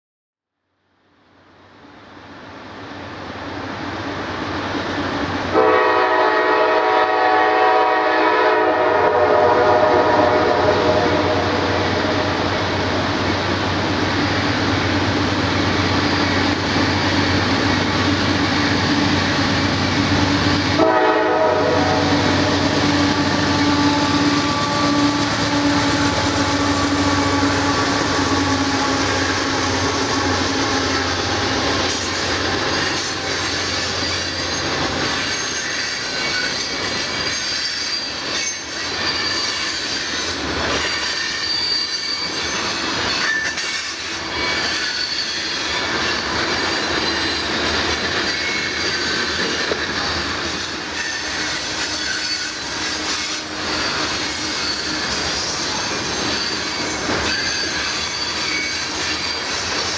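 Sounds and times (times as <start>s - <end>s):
diesel locomotive drone: 0.8s - 59.9s
train wheel squeal: 14.2s - 59.9s.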